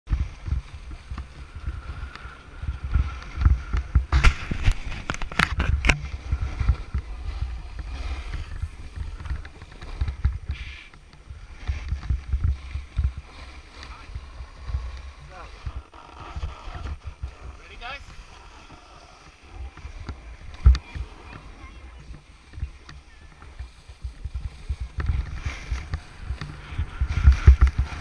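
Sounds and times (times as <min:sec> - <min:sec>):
wind buffeting microphone: 0:00.1 - 0:28.0
snowboard scraping on snow: 0:11.4 - 0:21.8, 0:24.2 - 0:28.0.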